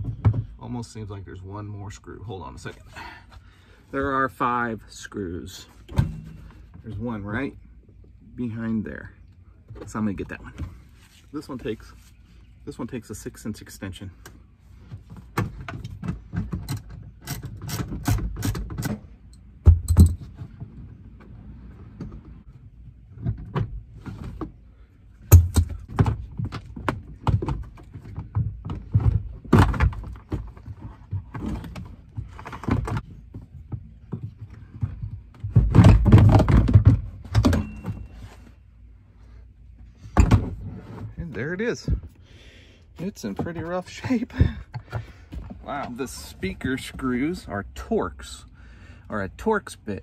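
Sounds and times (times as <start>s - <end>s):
plastic rattling and scraping: 25.4s - 38.3s.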